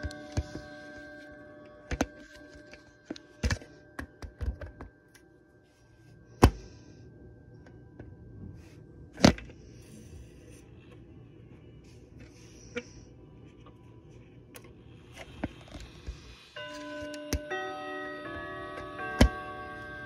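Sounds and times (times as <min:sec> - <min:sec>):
clock chime ringing: 0:00.0 - 0:05.9, 0:16.5 - 0:20.0.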